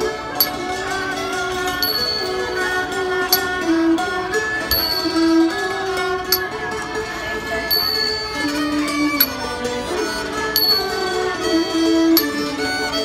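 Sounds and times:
string instruments melody: 0.0s - 13.0s
high ringing percussion stroke: 1.7s - 6.8s, 7.6s - 9.6s, 10.3s - 12.4s.

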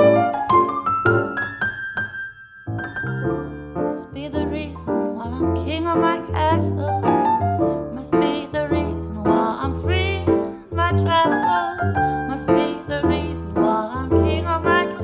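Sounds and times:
piano playing chords: 0.0s - 15.0s
woman singing: 3.9s - 15.0s.

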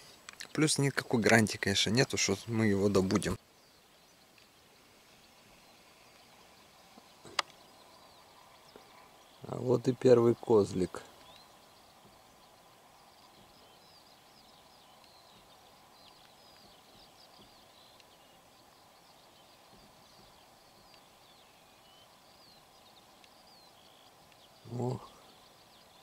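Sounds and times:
field hiss: 0.0s - 26.0s
small birds twittering: 0.0s - 26.0s.

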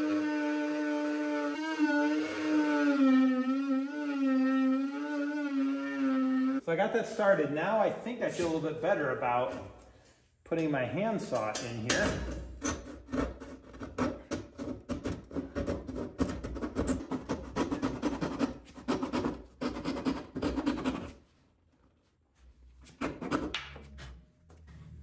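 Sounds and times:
handsaw cutting plywood: 0.0s - 6.6s, 12.7s - 21.2s, 22.9s - 23.5s.

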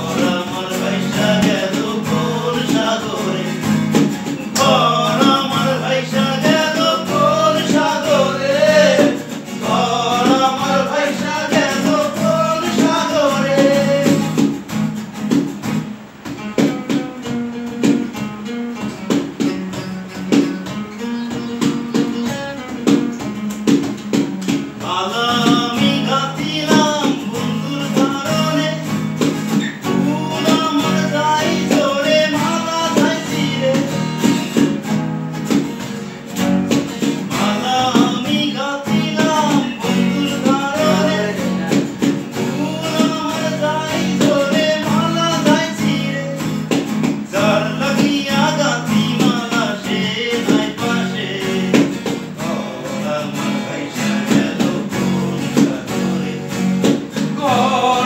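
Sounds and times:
man singing: 0.0s - 14.5s, 24.8s - 29.2s, 29.8s - 34.8s, 37.2s - 58.0s
acoustic guitar strummed: 0.0s - 58.0s.

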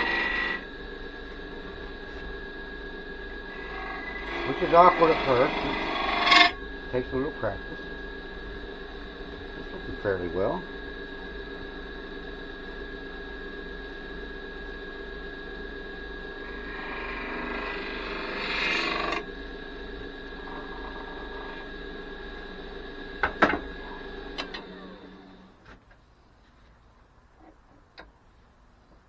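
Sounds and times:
turning tool cutting wood: 0.0s - 0.7s, 3.4s - 6.6s, 16.4s - 19.3s, 20.4s - 21.8s
lathe motor hum: 0.0s - 25.6s.

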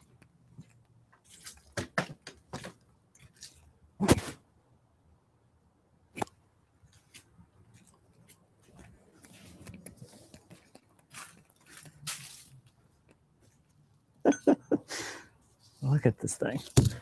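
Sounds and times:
handling rustles and clicks: 6.8s - 13.8s.

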